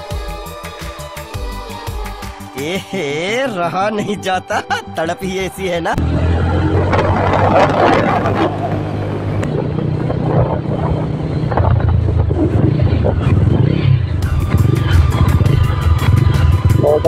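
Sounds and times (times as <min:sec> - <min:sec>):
road noise: 0:02.7 - 0:17.0
motorcycle engine droning: 0:06.0 - 0:17.0.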